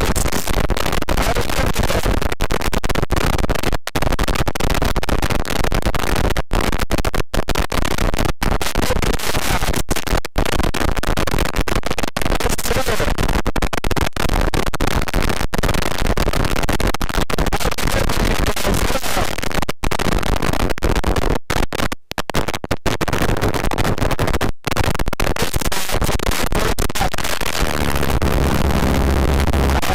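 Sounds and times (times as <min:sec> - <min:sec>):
steady low hum: 0:27.8 - 0:29.9.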